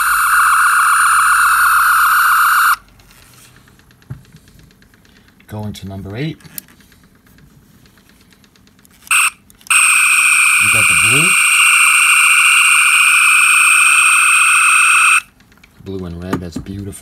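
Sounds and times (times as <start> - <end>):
electronic phaser beam tone: 0.0 - 2.8, 9.1 - 15.3.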